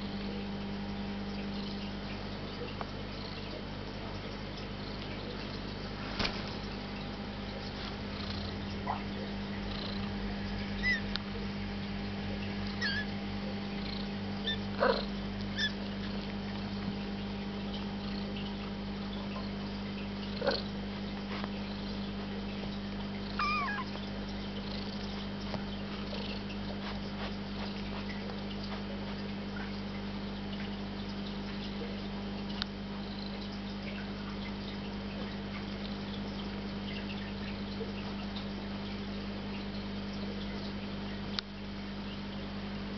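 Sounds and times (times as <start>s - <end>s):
steady low hum: 0.0s - 42.9s
kittens mewing: 12.8s - 13.1s, 23.3s - 24.0s.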